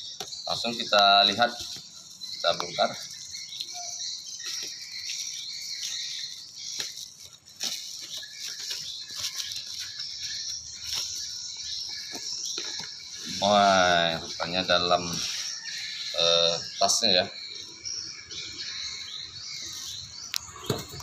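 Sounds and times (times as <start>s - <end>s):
plastic packaging crinkling: 4.4s - 13.0s.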